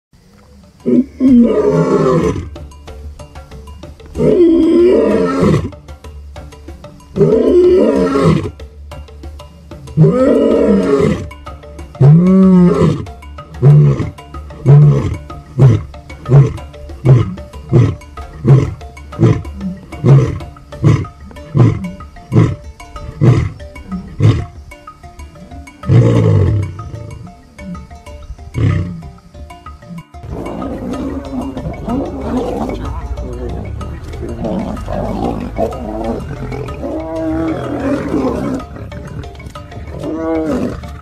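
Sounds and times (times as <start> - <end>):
lion roaring: 4.2 - 5.7, 7.2 - 8.5, 10.0 - 11.3, 30.2 - 39.2, 39.8 - 41.0
lion grunting: 10.0 - 11.4, 12.0 - 24.6, 30.2 - 41.0.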